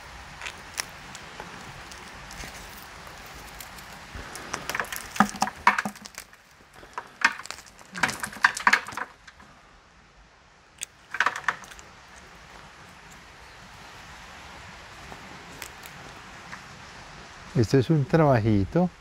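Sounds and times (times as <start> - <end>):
dry roots crackling and snapping: 0.2 - 9.4, 10.7 - 13.2, 15.0 - 16.7.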